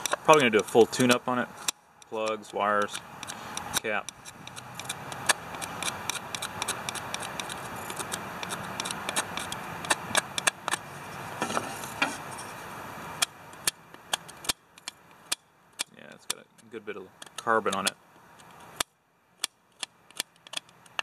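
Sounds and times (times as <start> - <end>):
screwdriver scraping metal: 0.0 - 12.6.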